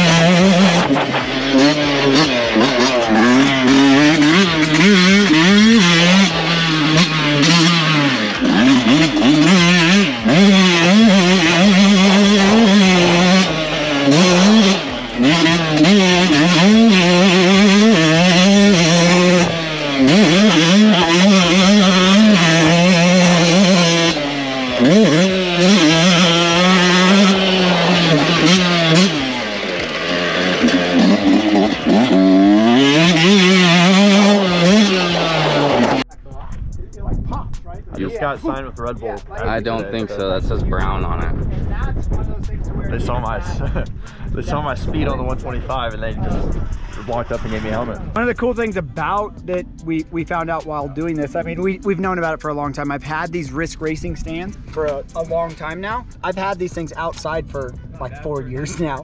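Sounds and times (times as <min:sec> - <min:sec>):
two-stroke engine revving: 0:00.0 - 0:36.2, 0:43.0 - 0:59.0.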